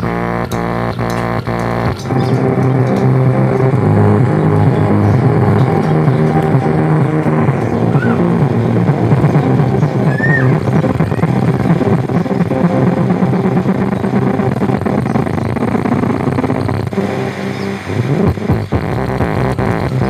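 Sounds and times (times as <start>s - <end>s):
clicks: 0.0s - 8.3s
bass-heavy music: 0.0s - 20.0s.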